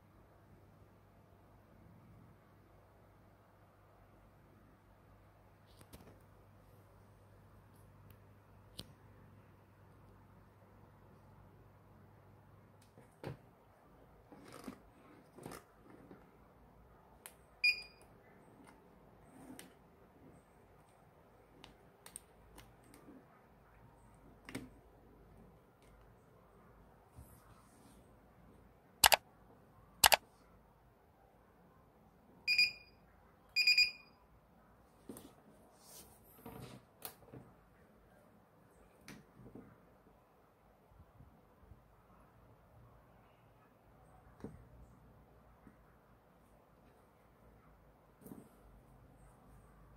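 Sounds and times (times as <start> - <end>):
sharp click: 29.0 - 29.2, 30.0 - 30.2.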